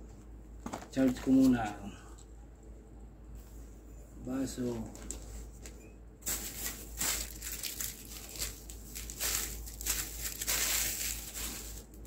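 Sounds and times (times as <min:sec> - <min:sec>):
plastic bag crinkling: 0:06.2 - 0:12.0.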